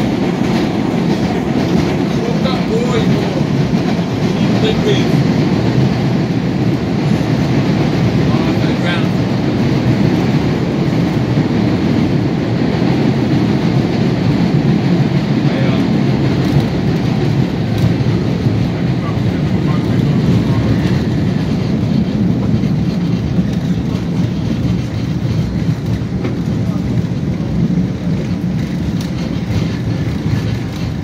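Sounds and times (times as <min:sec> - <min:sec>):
train wheels on rails: 0:00.0 - 0:31.0.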